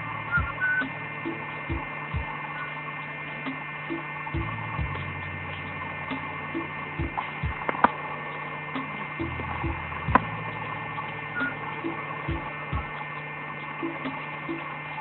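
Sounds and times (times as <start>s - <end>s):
electrical hum: 0.0s - 15.0s
sharp clicks: 4.3s - 8.1s
soft low thumps: 7.0s - 8.0s.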